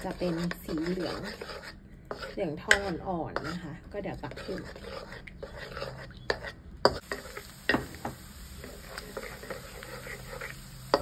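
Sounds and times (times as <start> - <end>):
garlic sizzling in oil: 4.2 - 11.0.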